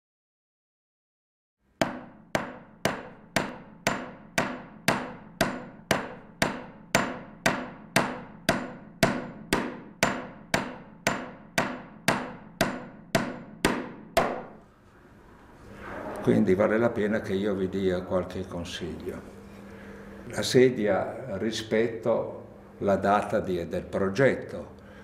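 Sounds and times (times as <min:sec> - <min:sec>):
hammer blows ringing: 0:01.8 - 0:14.6.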